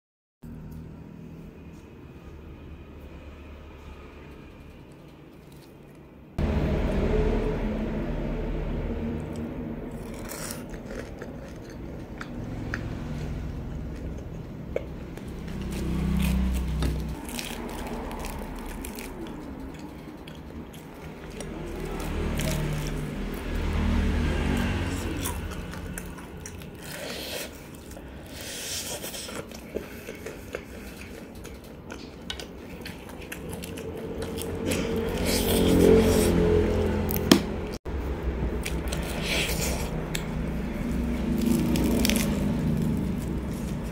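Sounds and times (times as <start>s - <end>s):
crunching of fried chicken: 9.9s - 36.6s, 38.4s - 43.9s.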